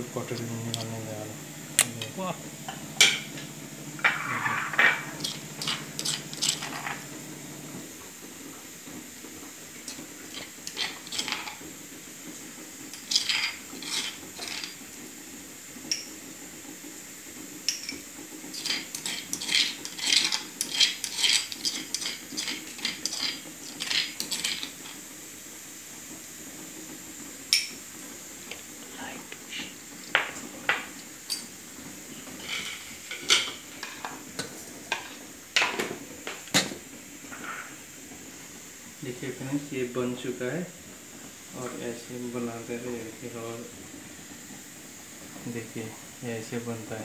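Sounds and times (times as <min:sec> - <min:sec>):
spoon scraping stone mortar: 0:04.0 - 0:07.1, 0:10.3 - 0:11.6, 0:12.9 - 0:14.8, 0:18.5 - 0:25.0.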